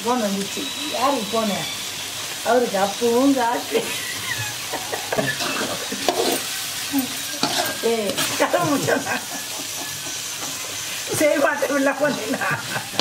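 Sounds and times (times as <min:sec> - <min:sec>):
gravy sizzling in oil: 0:00.0 - 0:13.0
ladle scraping metal pan: 0:05.2 - 0:09.0.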